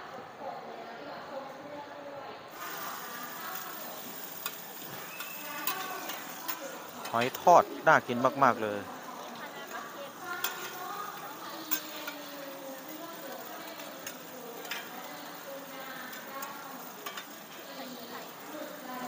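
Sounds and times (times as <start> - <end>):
omelettes sizzling on griddle: 2.5 - 19.0.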